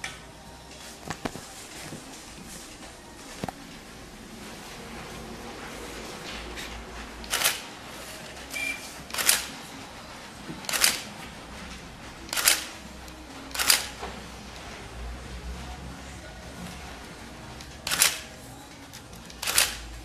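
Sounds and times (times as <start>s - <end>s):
camera shutter firing: 7.3s - 7.6s, 9.1s - 9.6s, 10.7s - 11.1s, 12.3s - 12.8s, 13.6s - 14.0s, 17.9s - 18.3s, 19.4s - 19.8s
short high beep: 8.6s - 8.9s.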